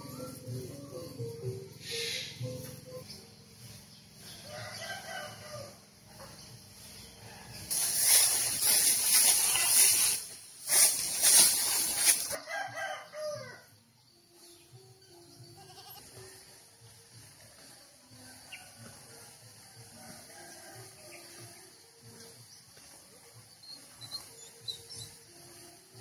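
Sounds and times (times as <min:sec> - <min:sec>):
farm animals calling: 0:00.0 - 0:13.7, 0:15.0 - 0:16.6, 0:17.6 - 0:26.0
rushing hissing noise: 0:06.8 - 0:12.4.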